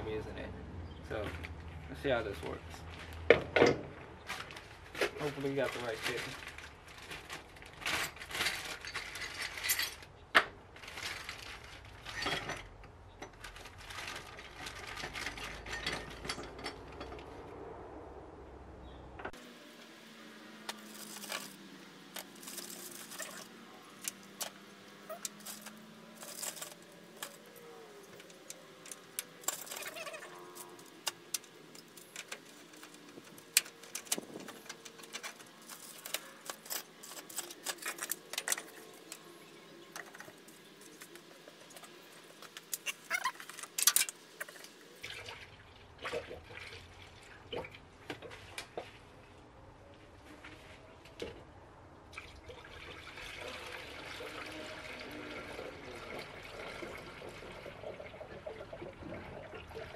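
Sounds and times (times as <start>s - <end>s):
plastic parts clicking and clattering: 3.5s - 17.3s, 20.7s - 44.8s.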